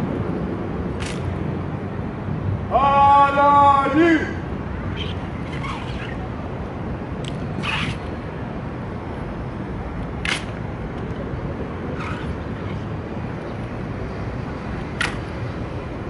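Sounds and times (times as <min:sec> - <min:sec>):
traffic rumble: 0:00.0 - 0:16.0.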